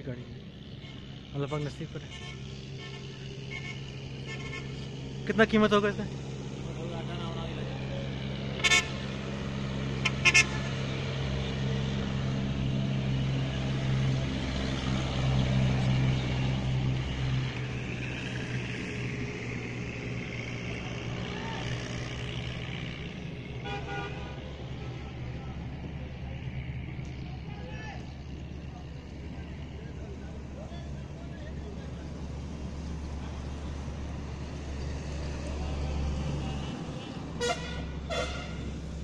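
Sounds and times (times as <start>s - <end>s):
vehicle engine idling: 0.0s - 39.0s
short horn toots: 37.4s - 38.7s.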